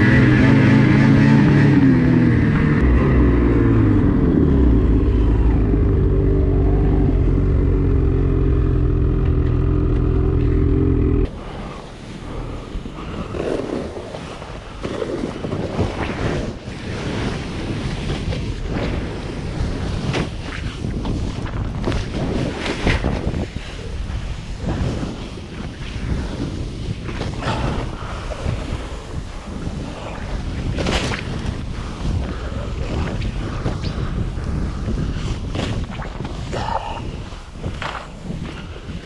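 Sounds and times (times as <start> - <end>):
snowmobile engine running: 0.0 - 13.8
wind rushing over microphone: 0.0 - 39.0
snowboard scraping through snow: 11.3 - 39.0.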